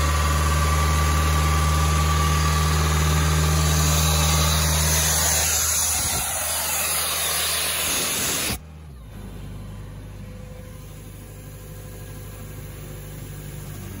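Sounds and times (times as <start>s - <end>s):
diesel engine running: 0.0s - 14.0s
compressed air hissing: 3.5s - 8.6s.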